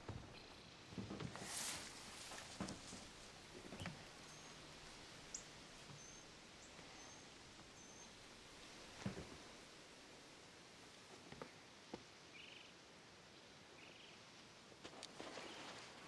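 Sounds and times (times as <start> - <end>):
faint high bird chirps: 5.3 - 8.2.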